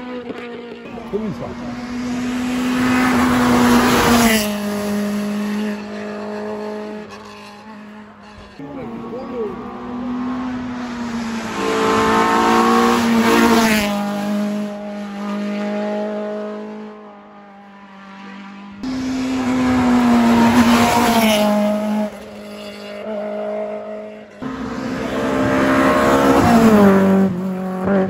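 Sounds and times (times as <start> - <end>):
rally car engines at high revs: 0.0 - 28.0.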